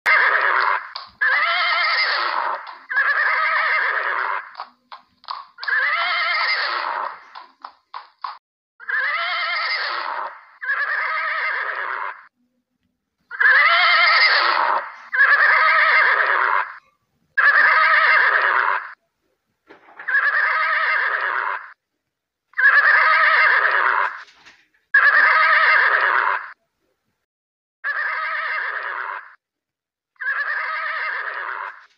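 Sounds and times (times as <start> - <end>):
horses neighing: 0.1 - 12.3, 13.3 - 16.8, 17.4 - 19.0, 20.0 - 21.8, 22.6 - 24.2, 25.0 - 26.6, 27.8 - 29.4, 30.2 - 31.9
hoof clops: 2.4 - 3.4, 7.2 - 8.4.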